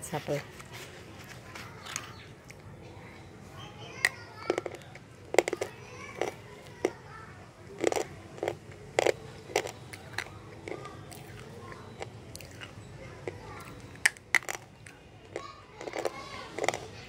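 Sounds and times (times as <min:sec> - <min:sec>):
slate pencils crunching: 0:04.0 - 0:07.0, 0:07.8 - 0:17.0.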